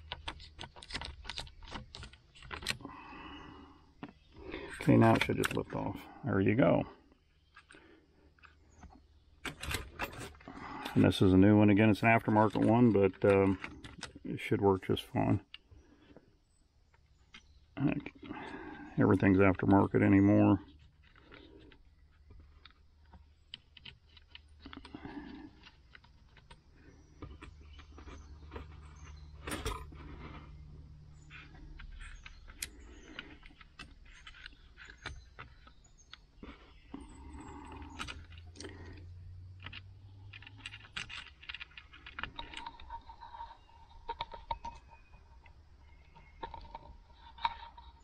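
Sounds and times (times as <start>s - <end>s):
plastic clicks and rattles: 0.0s - 2.9s, 20.7s - 48.0s.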